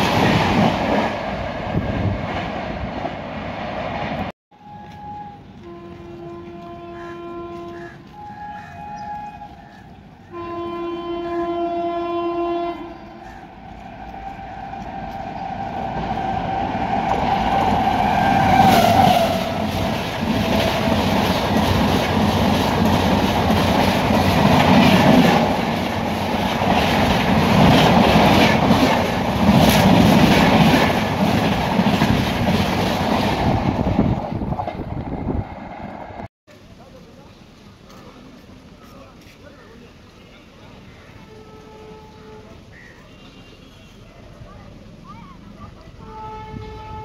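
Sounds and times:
train passing at high speed: 0.0s - 36.3s
train horn: 4.6s - 21.1s, 41.2s - 44.1s, 46.0s - 47.0s
wheels clacking over rail joints: 13.4s - 36.3s.

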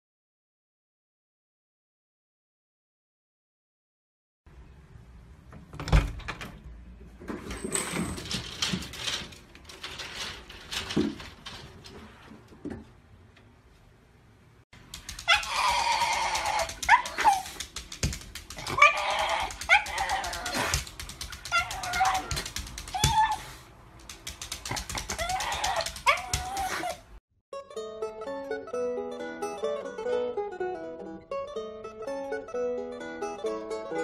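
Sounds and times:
knocks and rustles: 5.5s - 13.5s
dog whining and yelping: 15.1s - 17.7s, 18.6s - 23.6s, 24.9s - 27.2s.

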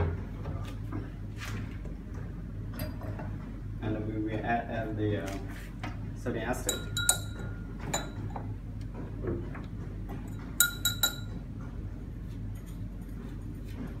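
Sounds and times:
rod clinking against glass beaker: 6.6s - 8.3s, 10.3s - 11.4s.

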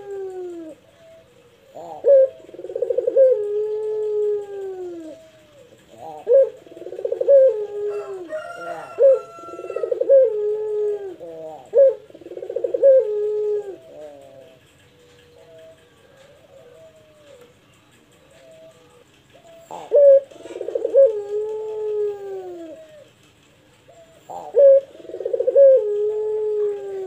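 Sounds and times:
dove cooing: 0.0s - 27.0s.

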